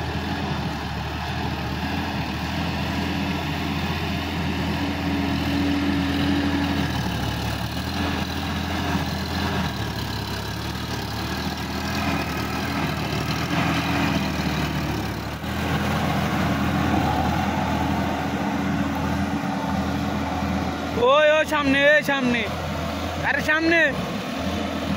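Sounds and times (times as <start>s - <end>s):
rotary tiller in wet mud: 0.0s - 18.2s
tractor diesel engine running: 0.0s - 24.9s.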